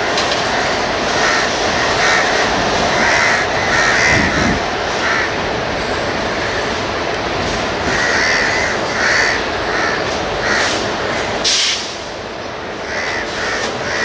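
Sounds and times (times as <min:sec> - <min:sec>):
electric train rumbling: 0:00.0 - 0:14.0
crows cawing: 0:00.5 - 0:05.4, 0:07.8 - 0:11.4, 0:12.8 - 0:14.0
sharp hiss: 0:10.5 - 0:12.1.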